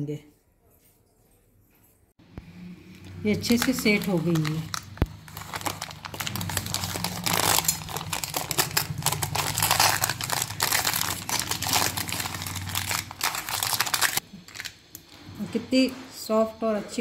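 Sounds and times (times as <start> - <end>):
paper crinkling: 3.3 - 14.8.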